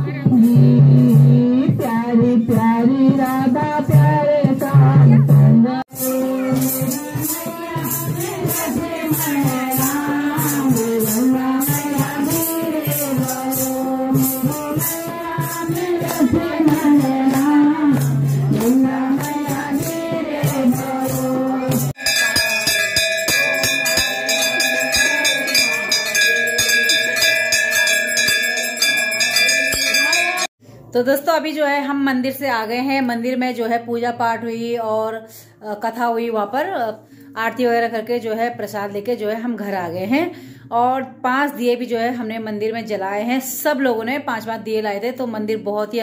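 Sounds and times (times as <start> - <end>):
women singing devotional song: 0.0 - 22.6
jingling rattle percussion: 5.9 - 30.5
temple bells ringing: 22.0 - 30.5.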